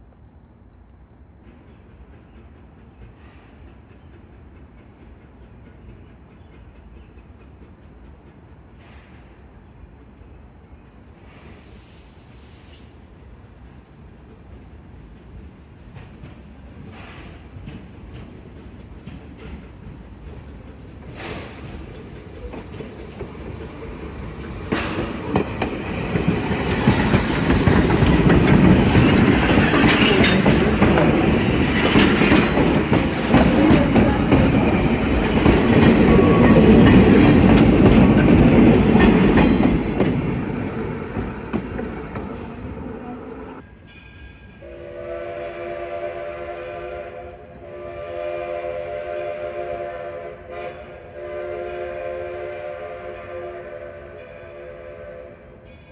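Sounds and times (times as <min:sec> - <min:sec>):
train wheels rumbling and clacking: 0:00.0 - 0:55.9
steam locomotive whistle: 0:36.0 - 0:36.9, 0:44.4 - 0:55.6.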